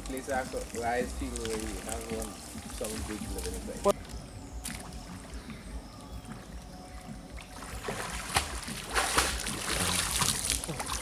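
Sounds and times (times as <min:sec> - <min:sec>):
water splashing from swimming: 0:00.0 - 0:04.0, 0:06.2 - 0:11.0.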